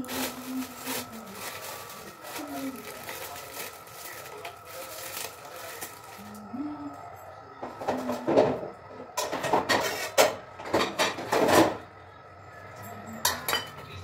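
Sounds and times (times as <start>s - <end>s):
metal dishes clattering and scraping: 7.6s - 11.9s, 12.8s - 14.0s.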